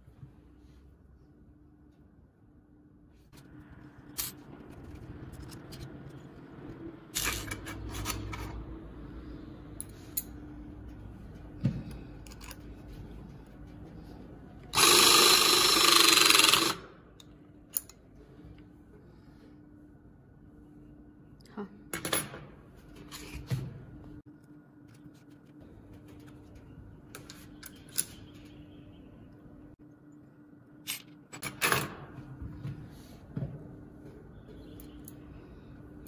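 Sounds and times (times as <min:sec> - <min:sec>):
handheld power tool motor: 0:14.7 - 0:16.8.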